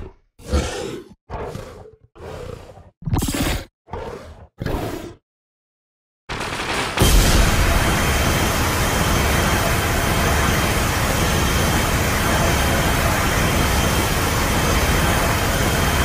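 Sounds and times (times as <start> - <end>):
monster rushing roar with deep rumble: 0.0 - 3.0.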